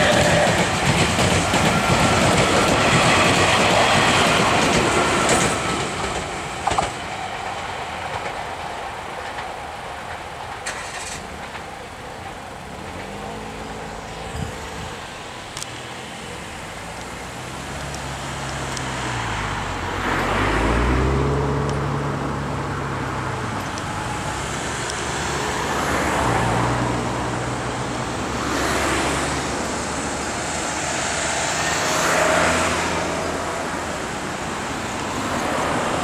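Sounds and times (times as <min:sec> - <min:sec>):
cars driving past: 0:12.6 - 0:36.0.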